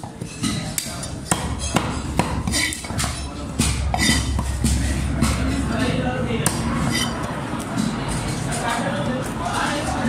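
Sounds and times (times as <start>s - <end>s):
cleaver chopping on wooden block: 0.4s - 4.8s.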